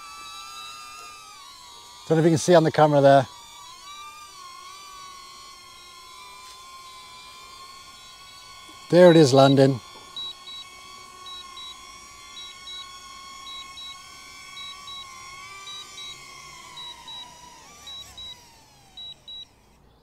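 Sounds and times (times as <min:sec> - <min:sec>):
drone propellers whining: 0:00.0 - 0:20.0.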